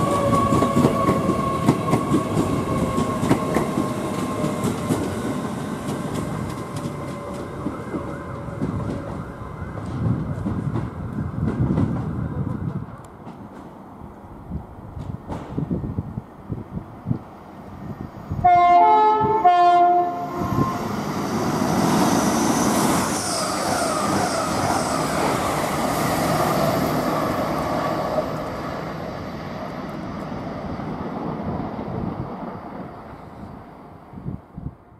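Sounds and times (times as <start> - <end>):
train passing at speed: 0.0 - 34.9
two-note train horn: 18.4 - 20.8.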